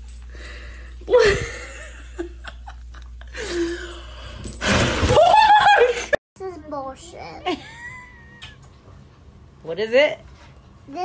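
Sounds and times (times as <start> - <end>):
woman's laughing cry: 7.5 - 8.6.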